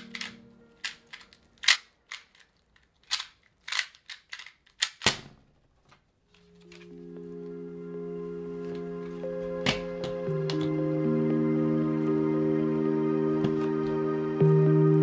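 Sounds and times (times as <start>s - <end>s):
lo-fi music: 0.0s - 2.2s, 6.3s - 15.0s
speed cube clicking: 0.0s - 5.2s.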